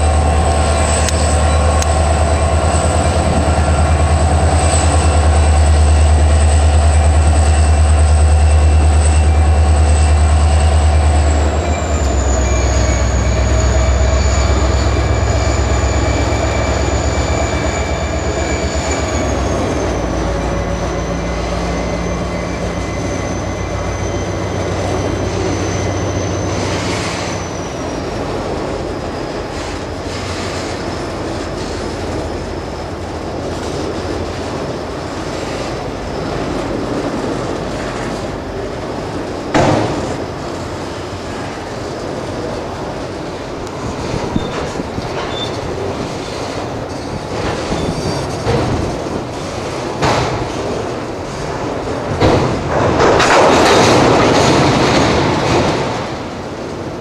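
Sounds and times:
high whine dropping in pitch: 0.0 - 27.0
locomotive engine rumble: 0.0 - 57.0
train cars rolling on rails: 0.0 - 57.0.

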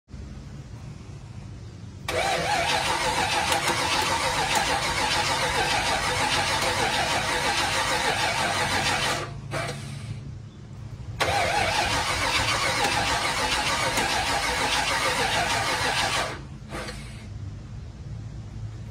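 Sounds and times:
engine cranking and starting: 2.0 - 10.2, 11.2 - 17.3.

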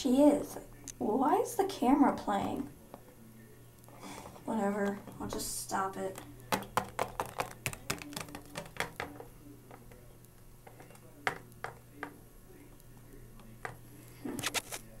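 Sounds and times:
faint steady hum: 0.0 - 15.0
plastic toy tapping on counter: 6.1 - 10.0.

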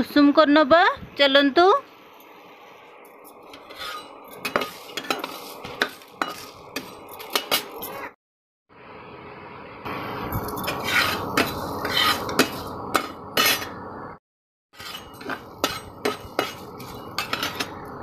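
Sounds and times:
spatula scraping metal pan: 3.4 - 8.0, 10.6 - 13.8, 14.8 - 17.9.

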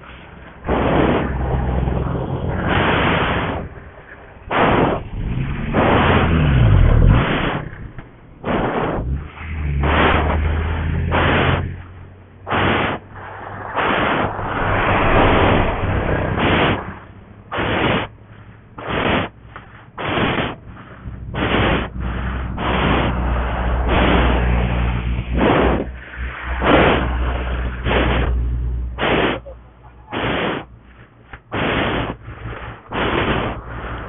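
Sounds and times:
wind noise on microphone: 0.0 - 3.8, 21.3 - 29.4
motorcycle engine at low revs: 0.0 - 34.0.

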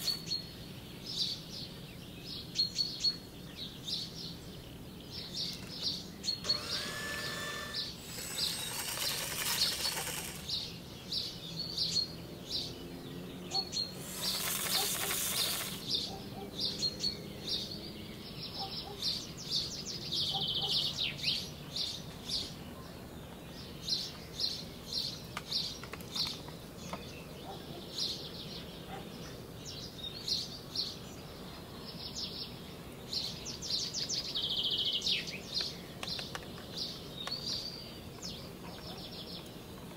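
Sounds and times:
small birds chirping: 0.0 - 39.9
long hissing noise: 6.4 - 10.8, 13.9 - 16.0.

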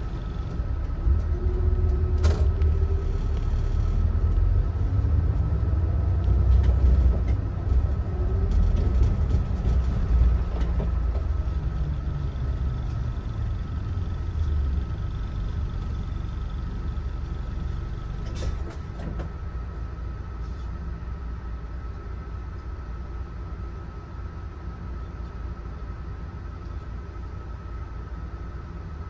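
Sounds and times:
bus engine and road rumble: 0.0 - 29.0.

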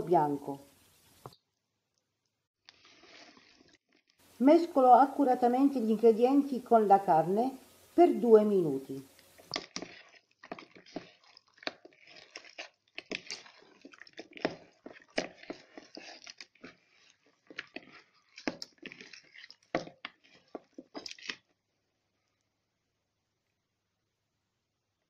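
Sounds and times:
meat squelching in marinade: 9.1 - 21.7.

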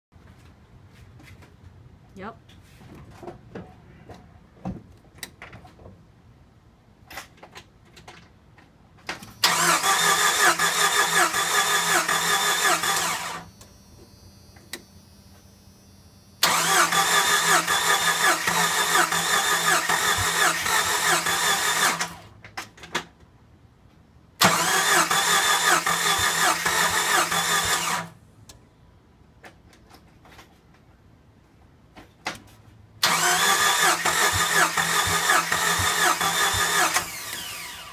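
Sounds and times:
engine cranking on starter: 9.2 - 13.7, 16.4 - 22.4, 24.4 - 28.2, 33.0 - 37.9.

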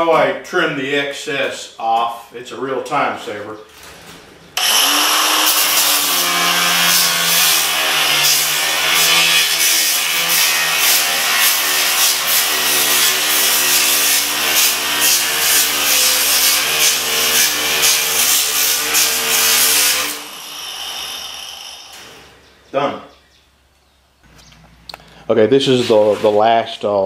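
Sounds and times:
angle grinder motor whine: 4.6 - 10.8, 19.1 - 22.3.

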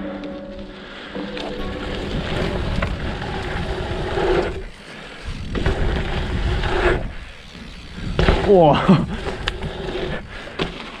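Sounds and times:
wind rushing over microphone: 1.6 - 10.3
bike tyres rumbling on dirt: 1.6 - 11.0.

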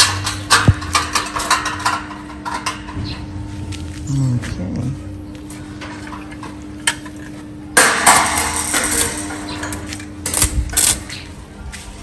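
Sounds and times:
metal clanks and clinks: 0.0 - 3.0, 7.8 - 11.2
steady electrical hum: 0.0 - 12.0.

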